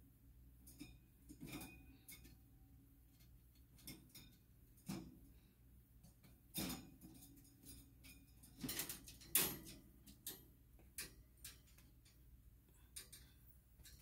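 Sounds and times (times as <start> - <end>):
wire cage rattling: 3.1 - 5.2, 6.5 - 14.0.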